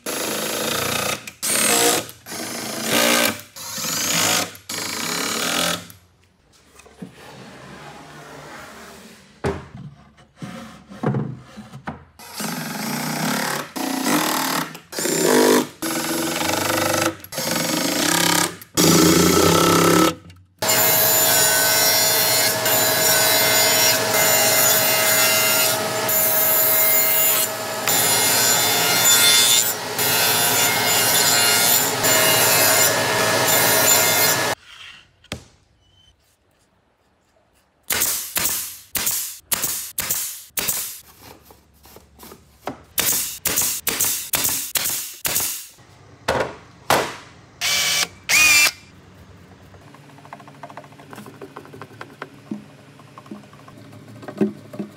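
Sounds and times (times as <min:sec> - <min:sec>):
table saw cutting wood: 0:17.4 - 0:34.6, 0:47.6 - 0:48.8.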